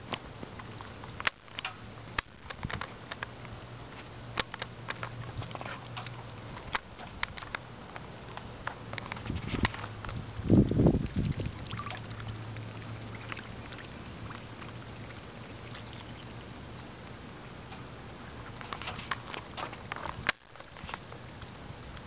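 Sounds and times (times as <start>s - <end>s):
ducks dabbling in water: 9.9s - 18.6s.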